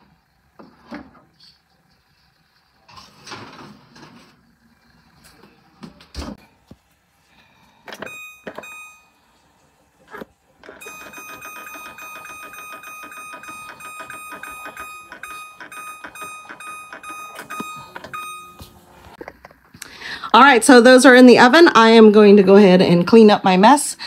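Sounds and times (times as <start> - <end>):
oven control panel beeping: 7.9 - 9.2, 10.1 - 19.2.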